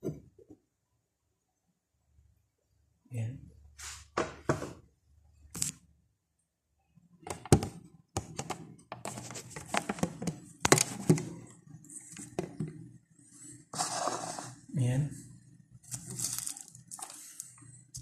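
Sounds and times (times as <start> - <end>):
phone being handled: 7.3 - 11.4.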